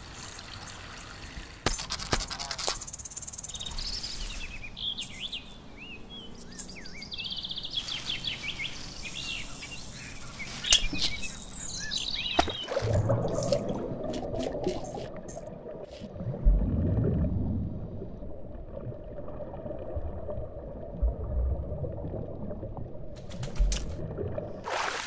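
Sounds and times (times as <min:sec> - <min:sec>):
sharp clicks: 0:01.7 - 0:03.8
birds chirping: 0:02.8 - 0:12.8.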